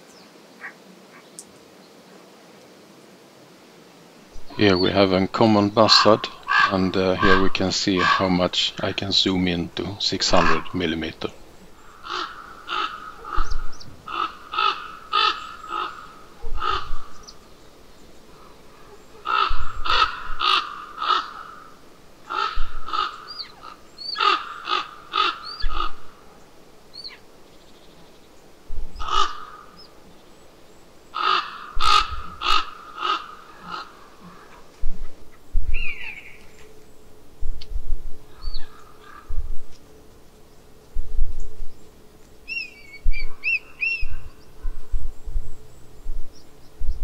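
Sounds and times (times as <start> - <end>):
crows cawing: 4.7 - 17.6, 18.2 - 27.3, 29.0 - 30.0, 31.0 - 36.5, 38.3 - 39.6.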